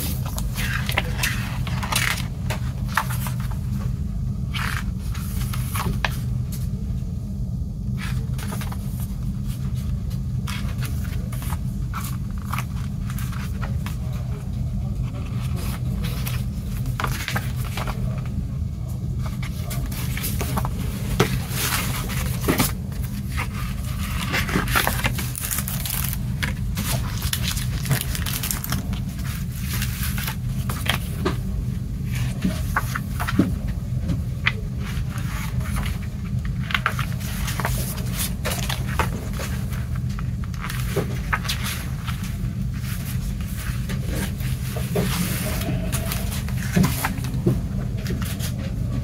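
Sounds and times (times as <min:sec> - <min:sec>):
paper pages turning: 0:00.0 - 0:06.7, 0:07.9 - 0:18.4, 0:19.2 - 0:48.7
plastic crinkling: 0:19.2 - 0:33.7.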